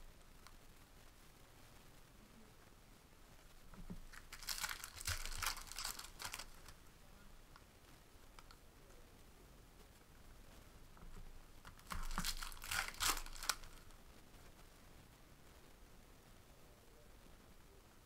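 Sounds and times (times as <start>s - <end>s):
card packs crinkling and tearing: 4.1s - 6.8s, 11.7s - 13.9s.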